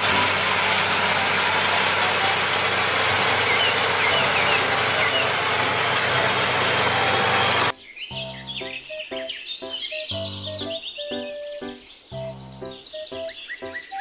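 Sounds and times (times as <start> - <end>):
tractor engine running under load: 0.0 - 7.7.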